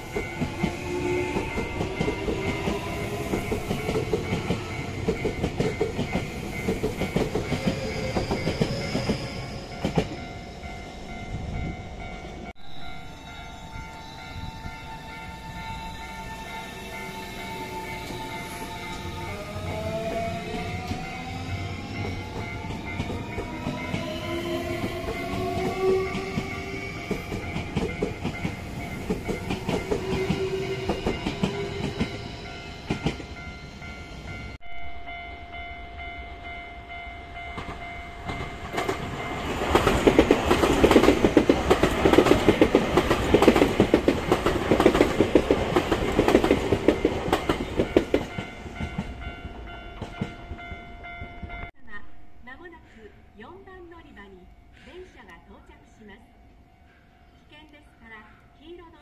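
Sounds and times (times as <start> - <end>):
train wheels clattering over rails: 37.6 - 49.2.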